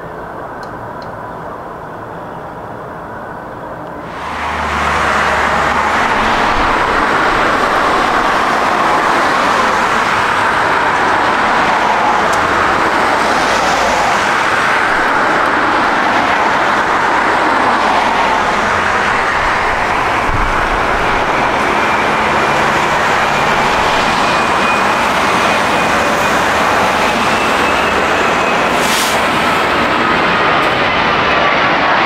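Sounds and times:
jet airliner engine noise: 0.0 - 32.0.

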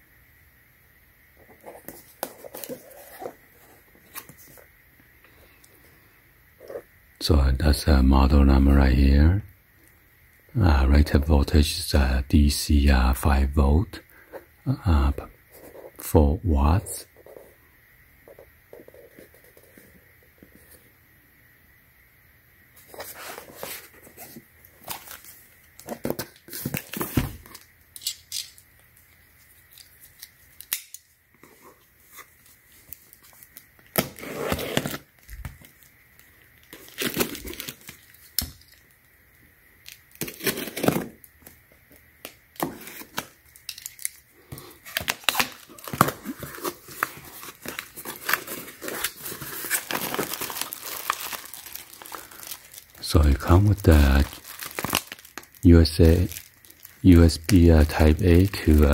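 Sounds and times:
cardboard scraping and tearing: 34.0 - 35.1
plastic bag crinkling: 44.8 - 58.9.

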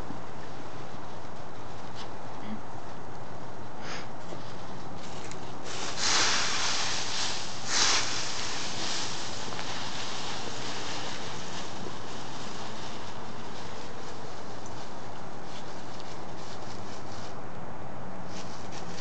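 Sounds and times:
steady hiss: 0.0 - 19.0
dogs rustling dry leaves: 4.3 - 17.4, 18.2 - 19.0.

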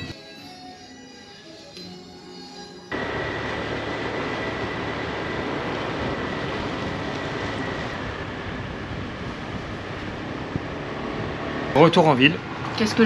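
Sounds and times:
faint high whine: 0.9 - 10.2
scooter engine and wind: 3.0 - 13.0.

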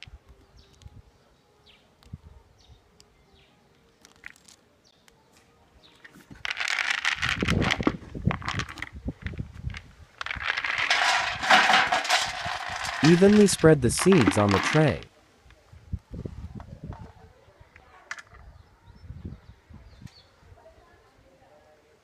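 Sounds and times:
seeds pouring and rattling: 6.3 - 15.0.

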